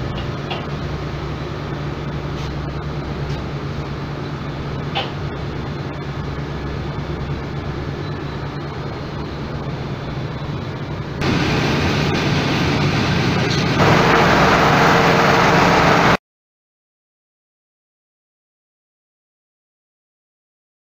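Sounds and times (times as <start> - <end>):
machinery drone: 0.0 - 16.2.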